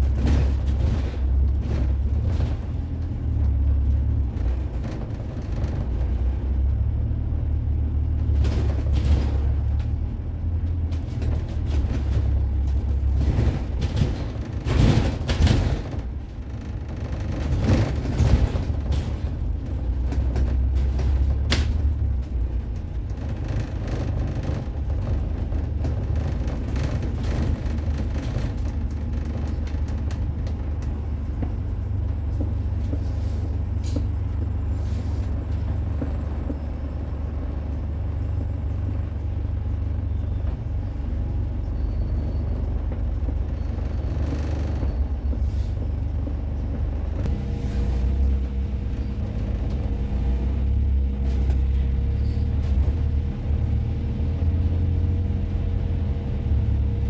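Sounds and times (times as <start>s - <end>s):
bus engine rumble: 0.0s - 57.0s
air brakes hissing: 33.0s - 34.1s, 34.7s - 35.3s, 45.4s - 45.9s, 52.2s - 52.6s.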